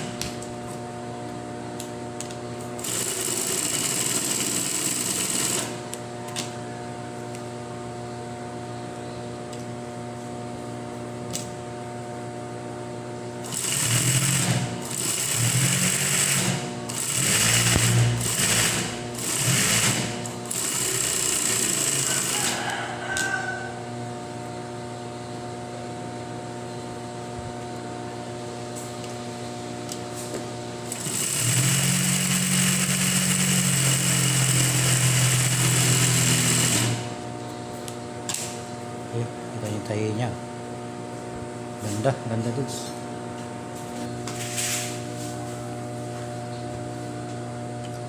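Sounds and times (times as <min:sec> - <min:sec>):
sewing machine stitching: 0:02.8 - 0:05.7, 0:13.4 - 0:22.4, 0:30.9 - 0:37.1
sewing machine motor humming: 0:02.8 - 0:05.8, 0:13.4 - 0:22.4, 0:30.9 - 0:37.2.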